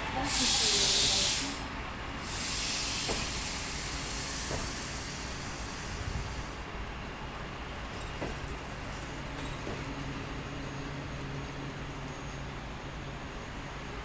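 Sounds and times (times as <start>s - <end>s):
train coaches rolling past: 0.0s - 14.0s
air brake hissing: 0.2s - 6.7s.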